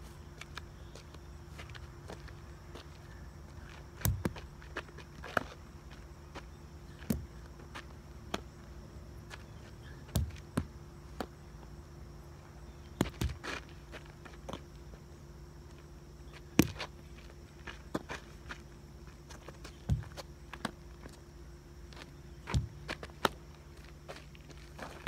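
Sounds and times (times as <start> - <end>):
footsteps on asphalt: 0.0 - 11.8, 12.4 - 25.0
faint steady hum: 0.0 - 25.0
sharp knocks on asphalt: 4.0 - 4.5, 7.0 - 7.4, 10.1 - 11.4, 12.9 - 13.5, 16.5 - 16.9, 19.7 - 20.8, 22.4 - 23.4.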